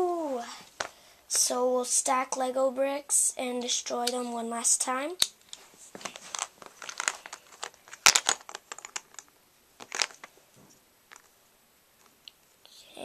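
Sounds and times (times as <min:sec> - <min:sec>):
plastic bricks clicking: 0:06.3 - 0:10.3.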